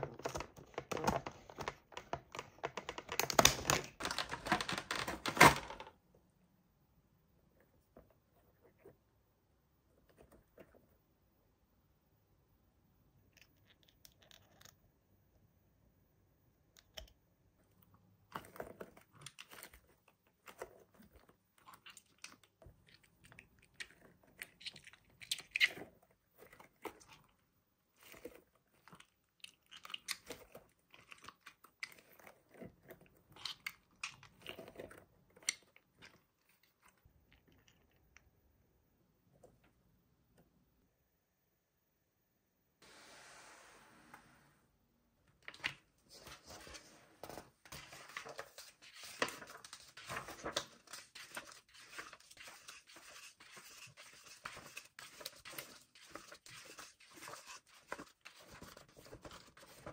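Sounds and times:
toy packaging crinkling and clicking: 0.0 - 5.9, 18.3 - 38.3.

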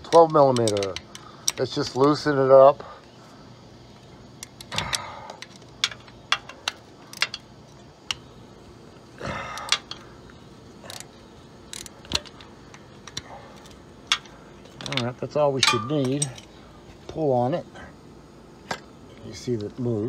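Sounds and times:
metal tools clicking: 0.0 - 2.3, 4.4 - 8.3, 9.5 - 10.1, 10.9 - 16.6
tools rattling: 0.0 - 2.3, 4.3 - 8.3, 9.5 - 10.1, 10.8 - 16.6.

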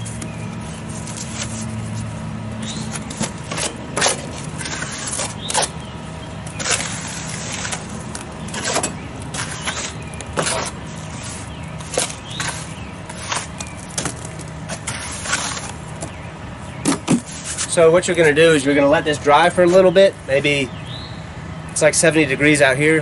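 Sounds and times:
steady low hum: 0.0 - 23.0
trowel scraping mortar on brick: 3.0 - 5.8, 6.6 - 7.9, 8.5 - 13.7, 14.7 - 15.8, 17.1 - 17.8.

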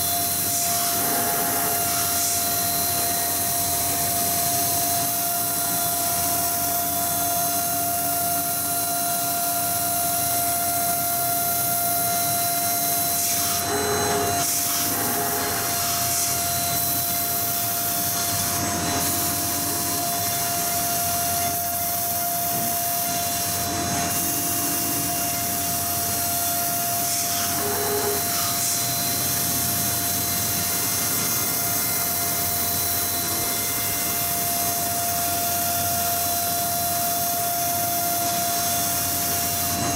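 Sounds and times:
cutter rasping through metal: 0.0 - 39.9
milling machine spindle whine: 0.0 - 39.9.

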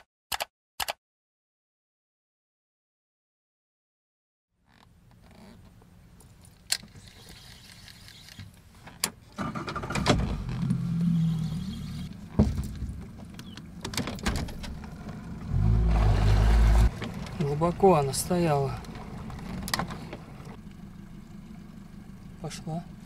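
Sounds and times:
low mechanical hum: 10.3 - 23.0.

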